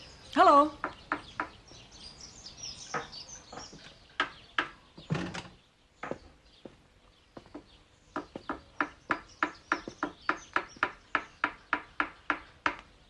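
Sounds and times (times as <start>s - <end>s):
small hammer tapping on wood: 7.4s - 12.9s.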